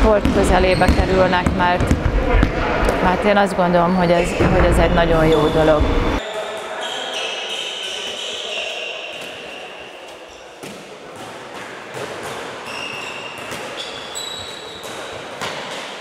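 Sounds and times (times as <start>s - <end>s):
ball bouncing on wooden floor: 0.1s - 2.6s
shoes squeaking on parquet: 12.6s - 15.1s.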